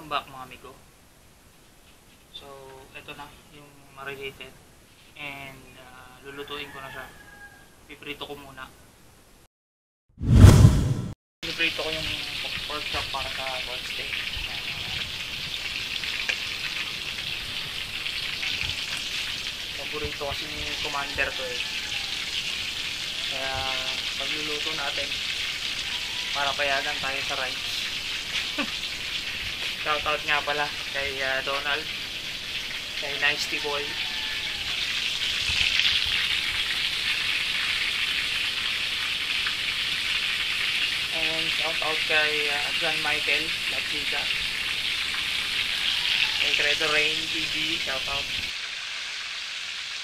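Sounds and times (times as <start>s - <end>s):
pork chops sizzling in oil: 11.4s - 50.0s.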